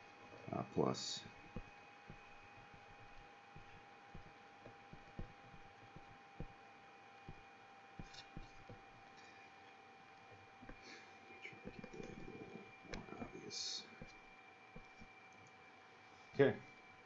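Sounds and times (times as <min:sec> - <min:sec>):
low electrical hum: 0:00.0 - 0:17.0
stylus tapping on tablet screen: 0:01.2 - 0:08.9, 0:10.6 - 0:11.0, 0:11.6 - 0:13.3, 0:13.9 - 0:15.2.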